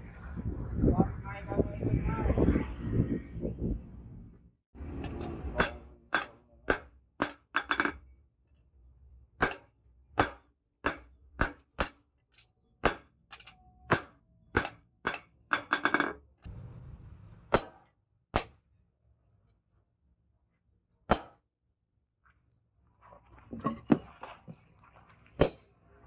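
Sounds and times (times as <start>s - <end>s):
hammer striking steel on anvil: 4.9s - 8.0s, 9.4s - 12.0s, 12.8s - 16.2s, 17.5s - 18.6s.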